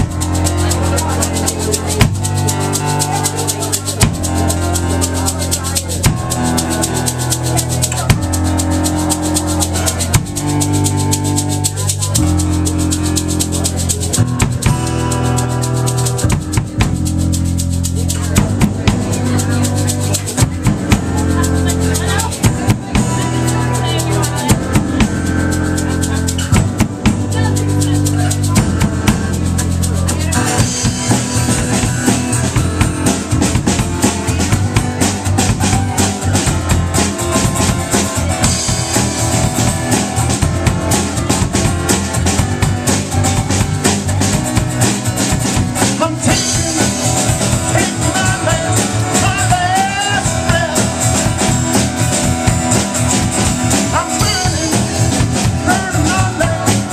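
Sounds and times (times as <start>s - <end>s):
acoustic guitar: 0.0s - 56.9s
drum kit: 0.0s - 56.9s
keyboard: 0.0s - 56.9s.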